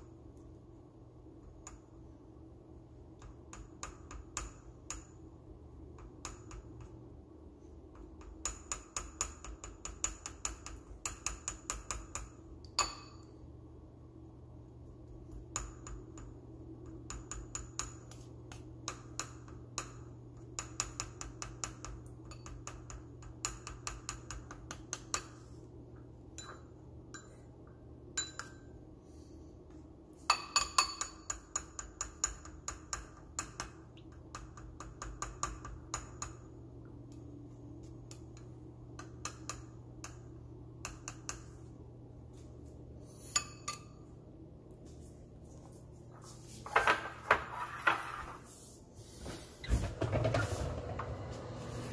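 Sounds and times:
utensil clinking on ceramic bowl: 12.7s - 13.4s, 26.4s - 27.4s, 28.2s - 28.8s, 30.3s - 32.8s, 43.3s - 44.1s.

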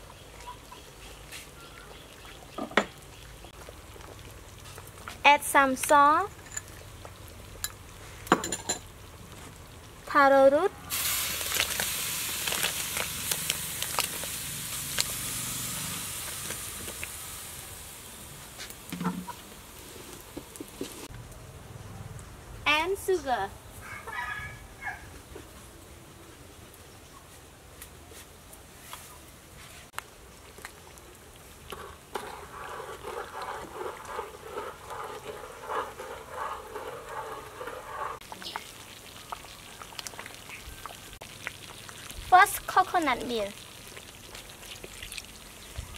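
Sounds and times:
pot boiling with a hiss: 0.0s - 21.2s, 22.9s - 45.9s
spoon stirring pot: 31.6s - 38.7s.

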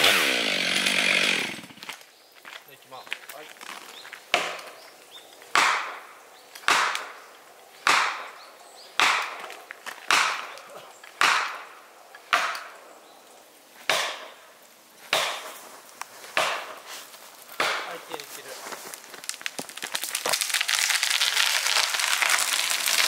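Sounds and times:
wood chopping blows: 4.3s - 4.8s, 5.5s - 7.2s, 7.8s - 8.4s, 9.0s - 12.8s, 13.8s - 14.4s, 15.1s - 23.0s.

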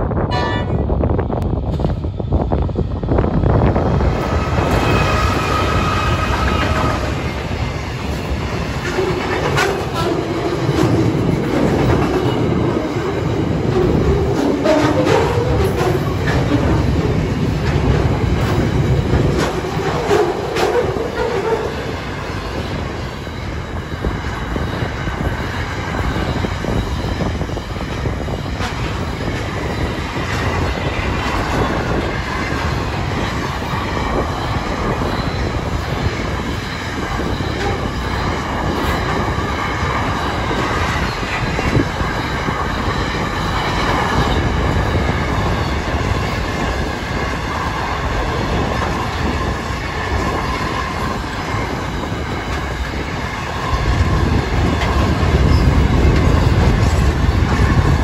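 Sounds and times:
train wheels rumbling on rail: 0.0s - 58.0s
wheel squeal: 4.3s - 7.6s, 25.8s - 46.8s, 48.3s - 57.9s.

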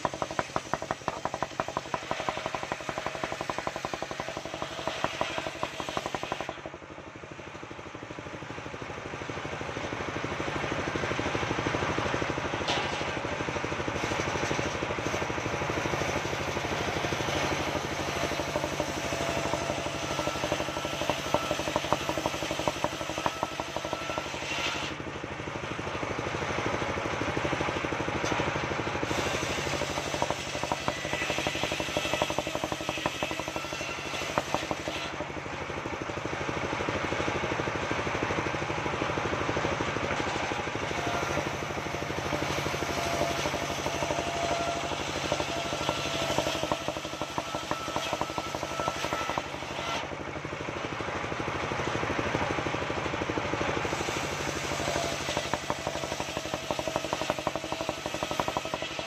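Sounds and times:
circular saw ripping wood: 0.0s - 6.8s, 10.9s - 26.6s, 28.2s - 35.4s, 39.8s - 50.2s, 53.7s - 59.0s
engine pulsing: 0.0s - 59.0s.

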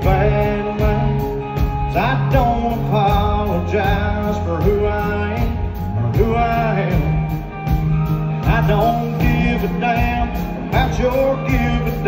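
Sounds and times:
man singing into a microphone: 0.0s - 7.5s, 8.4s - 12.0s
live country band playing: 0.0s - 12.0s.

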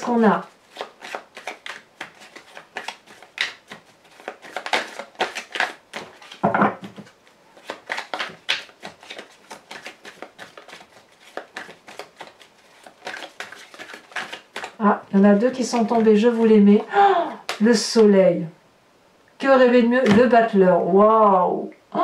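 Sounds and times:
cards being shuffled: 0.1s - 16.6s.

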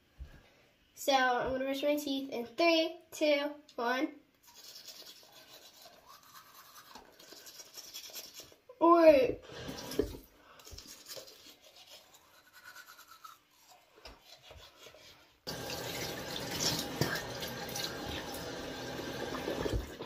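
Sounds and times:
toothbrush scrubbing teeth: 4.4s - 8.6s, 9.6s - 15.5s, 16.6s - 17.9s.

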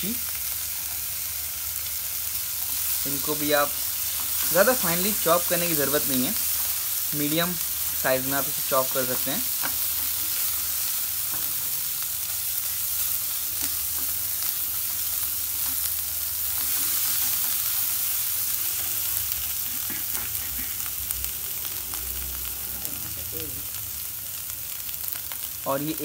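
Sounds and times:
food sizzling in oil: 0.0s - 26.0s
wooden spatula scraping pan: 19.6s - 20.9s.

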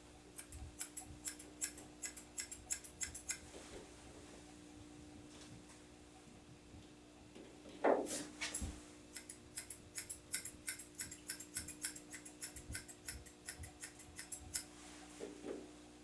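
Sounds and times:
shears snipping dog hair: 0.4s - 3.5s, 8.1s - 14.7s.

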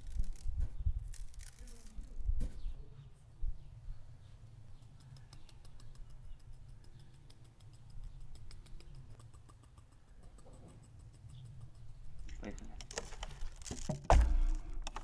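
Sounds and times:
rapid high ticking: 4.8s - 12.6s.

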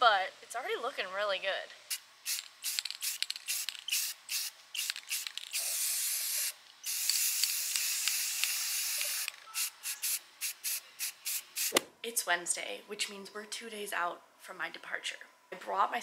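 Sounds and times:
spray paint can hissing: 1.9s - 11.8s.

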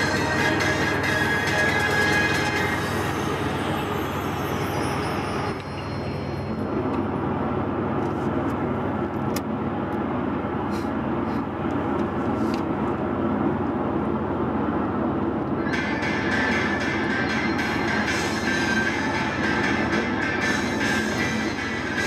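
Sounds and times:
high-pitched sound: 0.0s - 7.3s, 15.6s - 22.0s
car cabin road and engine noise: 0.0s - 22.0s.

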